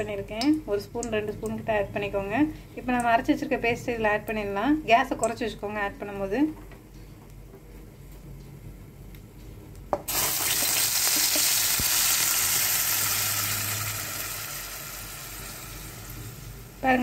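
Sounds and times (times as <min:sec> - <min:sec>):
paste sizzling in hot oil: 0:10.1 - 0:16.8.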